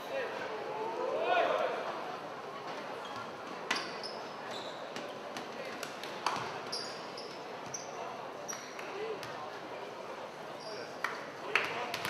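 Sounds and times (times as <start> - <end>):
echoing background chatter: 0.0 - 12.0
shoes squeaking on hardwood court: 3.0 - 5.2, 6.4 - 8.8.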